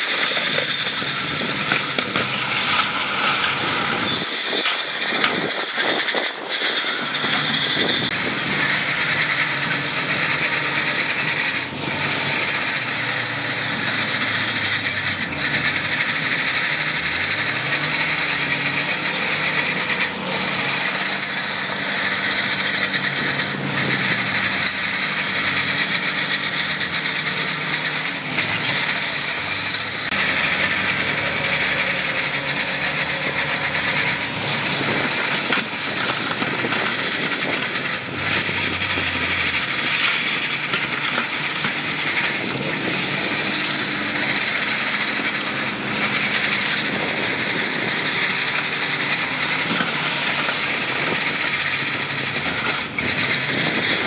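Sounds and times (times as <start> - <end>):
large diesel engine running: 0.0 - 54.0.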